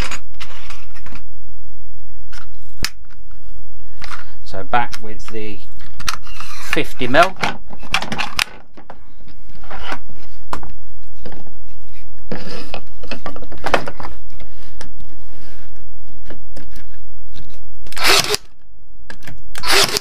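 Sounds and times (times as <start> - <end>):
low hum: 0.0 - 6.8, 7.4 - 20.0
nail gun firing: 17.9 - 18.5, 19.6 - 20.0.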